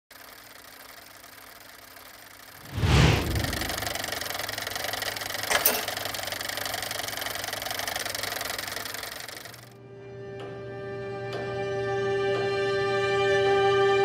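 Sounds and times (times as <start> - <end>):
sharp hit: 2.6 - 4.4.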